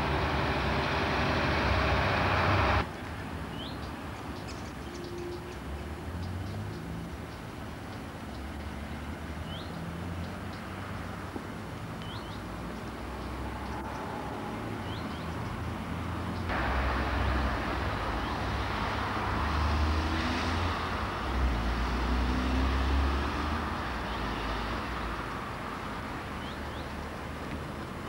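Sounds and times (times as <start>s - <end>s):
distant road traffic rumble: 0.0s - 28.0s.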